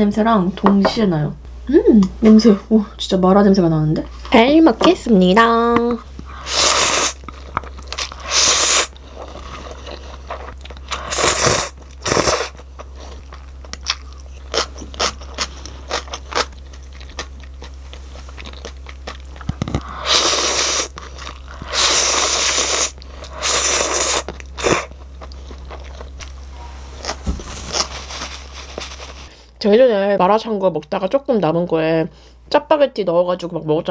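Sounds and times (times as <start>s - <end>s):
person slurping noodles: 6.3s - 7.2s, 8.0s - 10.0s, 10.9s - 12.6s, 19.8s - 24.9s
chewing: 8.9s - 29.3s.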